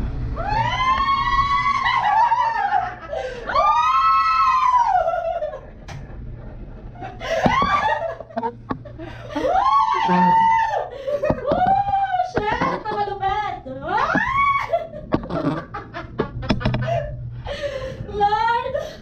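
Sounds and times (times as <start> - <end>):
woman shrieking and laughing: 0.4 - 5.6, 7.1 - 8.4, 9.3 - 13.0, 13.9 - 15.0.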